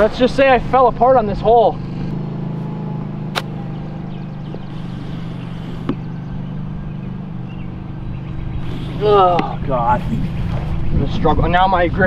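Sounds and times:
steady low hum: 0:02.1 - 0:11.4
golf club striking ball: 0:02.6 - 0:04.2.

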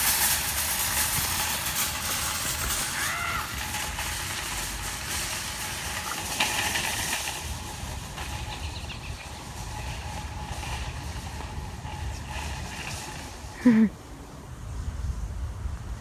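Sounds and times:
shopping cart wheels rattling: 0:00.0 - 0:13.9.

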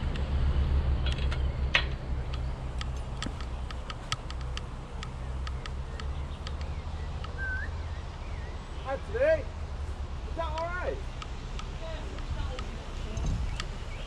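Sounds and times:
steady low hum: 0:00.0 - 0:14.0
light sharp clicks: 0:01.1 - 0:07.4, 0:10.4 - 0:13.8.

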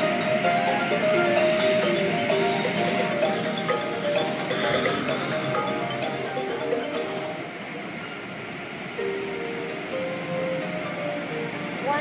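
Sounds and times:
music with held notes: 0:00.0 - 0:07.8
steady rushing noise: 0:00.0 - 0:12.0.

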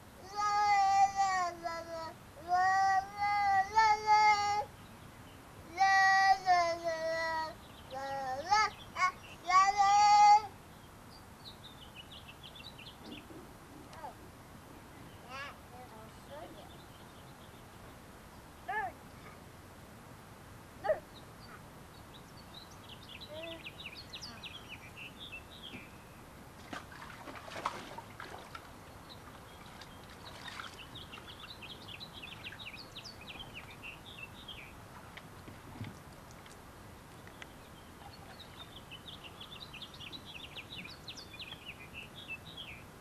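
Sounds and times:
songbird chirping: 0:02.6 - 0:19.5, 0:20.8 - 0:43.0.

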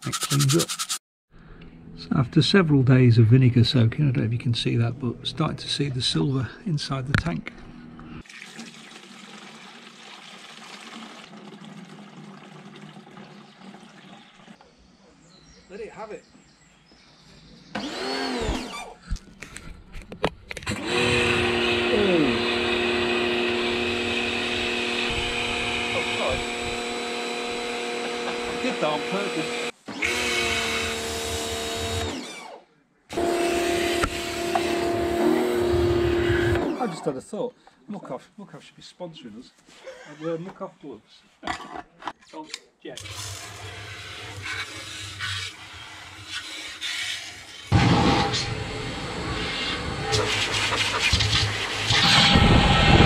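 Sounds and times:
liquid pouring and splashing: 0:08.2 - 0:14.6
small electric motor running: 0:17.8 - 0:19.0, 0:20.7 - 0:36.8.

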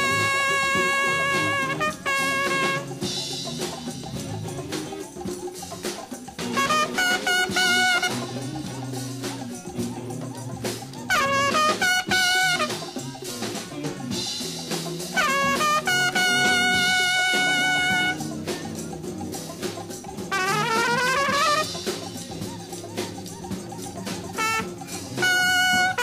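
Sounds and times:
horn playing jazz phrases: 0:00.0 - 0:03.8, 0:06.4 - 0:13.8, 0:15.0 - 0:26.0
bass: 0:00.0 - 0:06.9
drums: 0:00.0 - 0:26.0.

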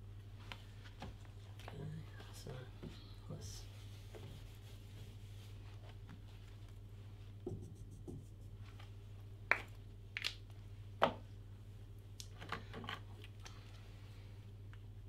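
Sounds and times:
steady low hum: 0:00.0 - 0:15.0
marker tapping on whiteboard: 0:07.4 - 0:08.3.

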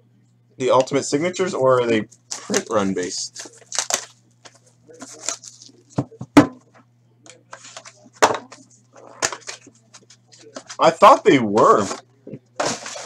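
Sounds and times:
faint hum: 0:00.0 - 0:13.0
plastic wrap crinkling and tearing: 0:02.3 - 0:05.8.

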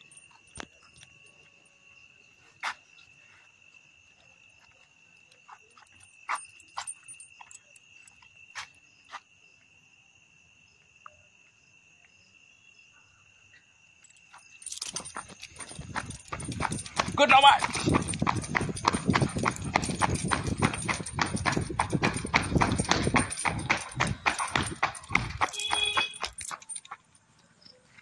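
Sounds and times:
chain leash clinking: 0:00.0 - 0:02.0, 0:04.5 - 0:08.8, 0:14.0 - 0:28.0
night insects trilling: 0:00.0 - 0:28.0.

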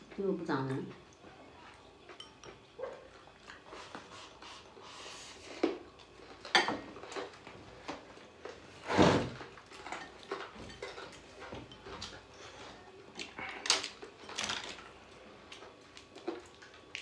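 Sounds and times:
chopsticks clinking on metal bowls: 0:02.0 - 0:03.6, 0:09.7 - 0:12.5.

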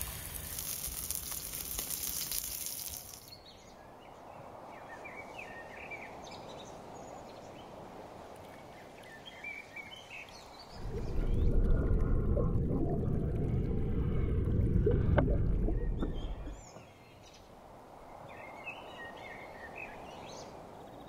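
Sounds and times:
eggs sizzling in a pan: 0:00.0 - 0:03.3
outdoor ambient hush: 0:00.0 - 0:18.3.

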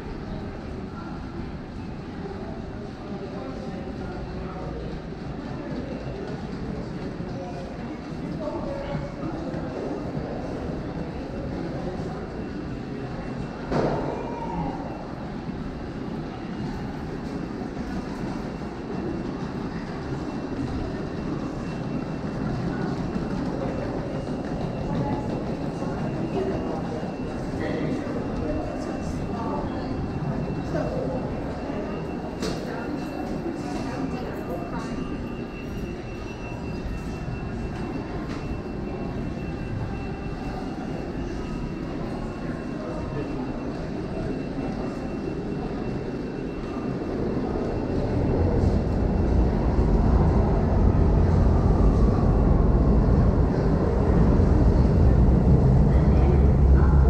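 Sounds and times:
subway train on tracks: 0:00.0 - 0:57.0
low rumble: 0:48.8 - 0:57.0.

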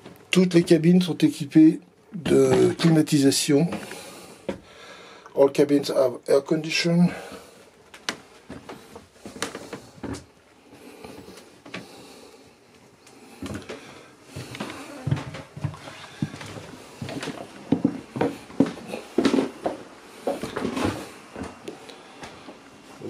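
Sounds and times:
footsteps on wooden floor: 0:03.7 - 0:04.7, 0:07.3 - 0:10.3, 0:13.4 - 0:21.6.

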